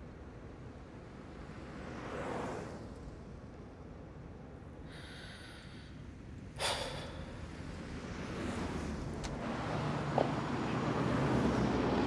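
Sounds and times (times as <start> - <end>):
soft breath: 4.8 - 7.6.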